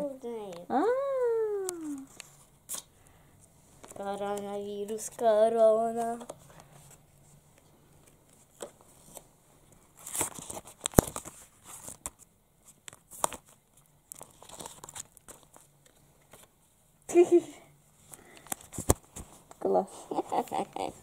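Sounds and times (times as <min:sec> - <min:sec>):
plastic and paper crinkling: 0:09.9 - 0:16.5.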